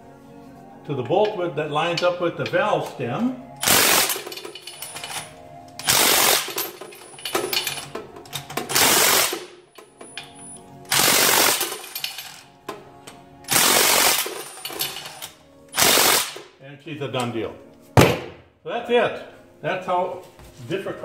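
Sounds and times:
impact wrench hammering: 8.5s - 9.6s, 18.0s - 18.4s.

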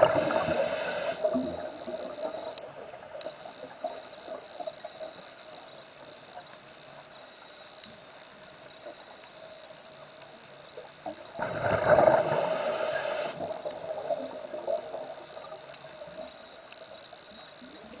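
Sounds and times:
faint underwater hum: 0.0s - 18.0s.

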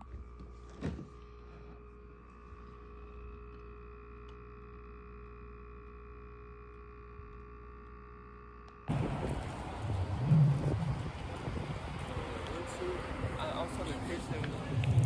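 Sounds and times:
refrigerator humming: 0.0s - 10.9s
loud street noise: 8.9s - 15.0s.

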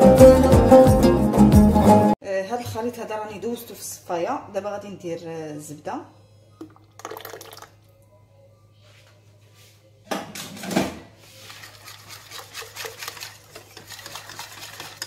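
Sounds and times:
whisk beating batter in bowl: 11.2s - 15.0s.

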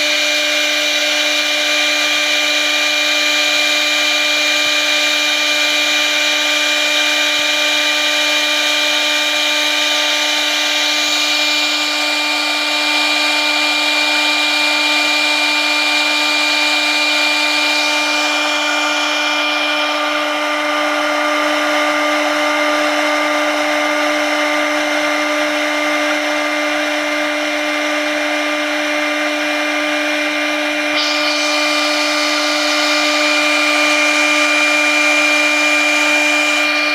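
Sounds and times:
router spindle whining: 0.0s - 36.9s
hiss of cutting: 31.0s - 36.9s.

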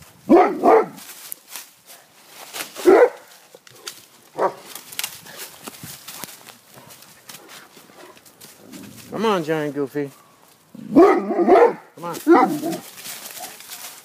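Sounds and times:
dog barking: 0.3s - 1.0s, 2.8s - 3.3s, 4.4s - 4.6s, 10.9s - 12.8s
dry leaves crackling and rustling: 0.7s - 10.8s, 12.0s - 14.0s.

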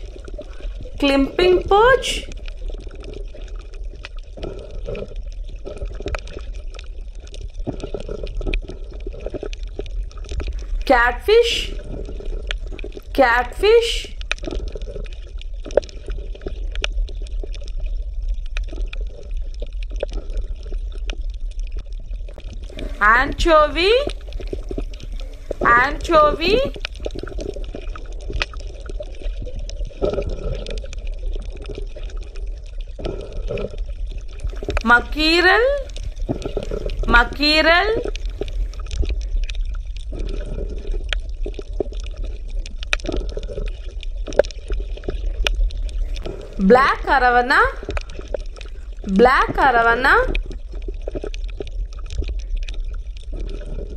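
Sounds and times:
water bubbling and gurgling: 0.0s - 53.9s
steady low hum: 22.5s - 27.6s.

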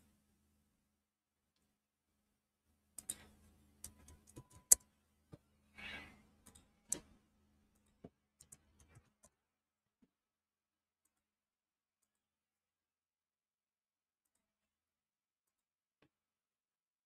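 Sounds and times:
keyboard and mouse clicks: 3.0s - 4.9s, 6.4s - 7.1s, 7.8s - 9.4s.

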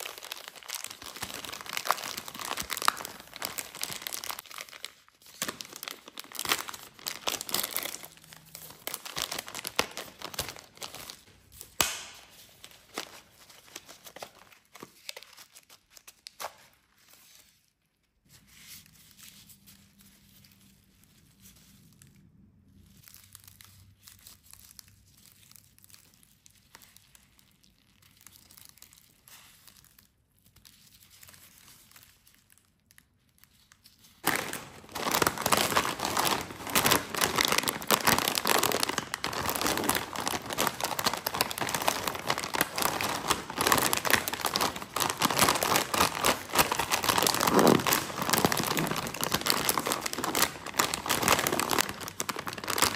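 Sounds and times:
plastic chip bag crinkling: 0.0s - 16.2s, 31.4s - 52.9s
faint rustling of candy: 0.0s - 52.9s.

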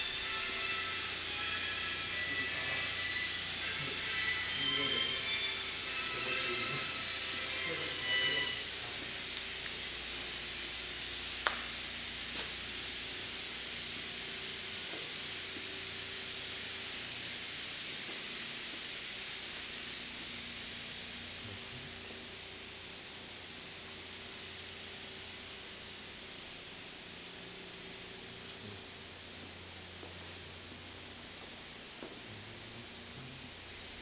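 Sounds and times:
machinery hiss and hum: 0.0s - 34.0s.

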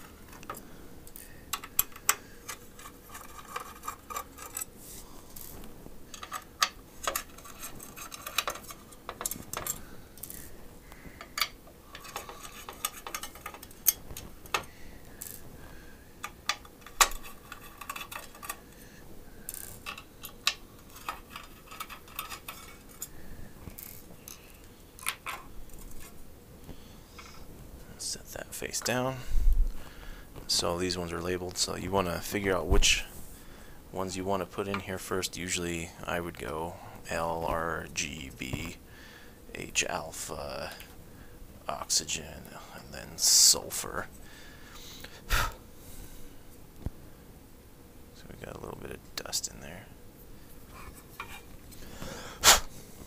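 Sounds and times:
clicks and clinks of hard parts: 0.3s - 4.7s, 6.1s - 10.4s, 11.2s - 14.7s, 16.2s - 18.6s, 19.5s - 23.1s.

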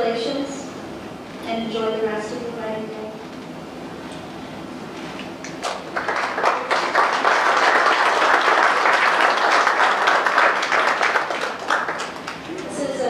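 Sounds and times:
audience applauding: 5.4s - 12.7s.

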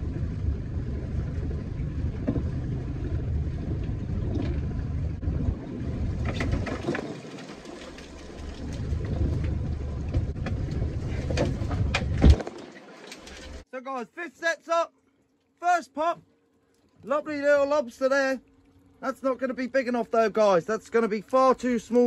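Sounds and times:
boat engine rumbling: 0.0s - 12.6s, 13.2s - 22.0s
knocks and clatter: 8.7s - 13.6s.

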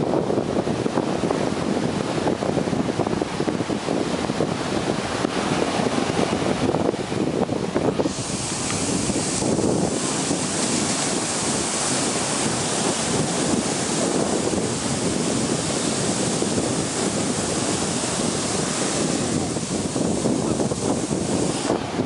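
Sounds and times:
ocean surf breaking: 0.0s - 22.0s
wind buffeting microphone: 0.0s - 22.0s.

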